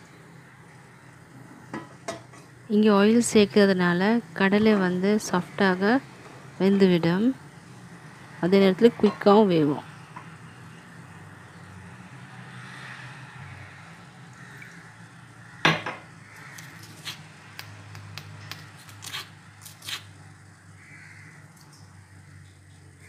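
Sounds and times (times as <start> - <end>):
sharp clicks and taps: 17.6 - 19.2.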